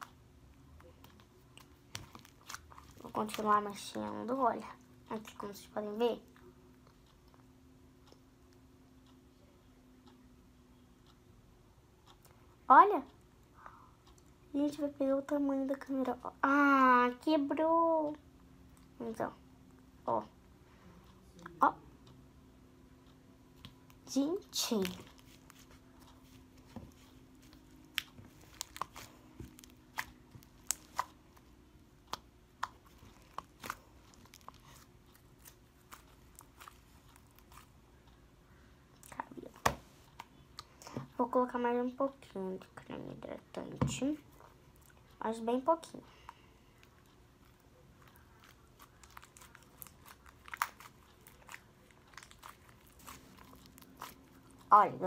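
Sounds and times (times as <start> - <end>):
slime clicking and crackling: 0.8 - 4.6, 27.4 - 31.2, 32.1 - 37.7, 46.8 - 55.0.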